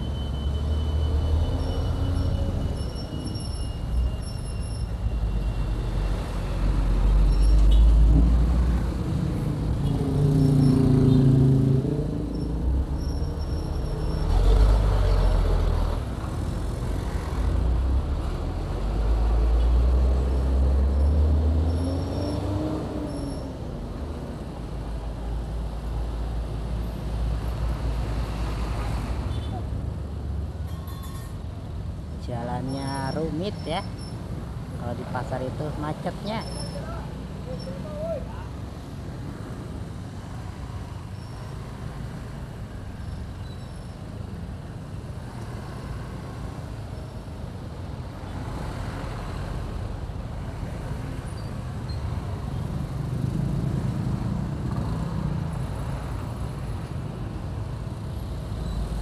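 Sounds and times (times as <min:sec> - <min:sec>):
road traffic: 0:00.0 - 0:59.0.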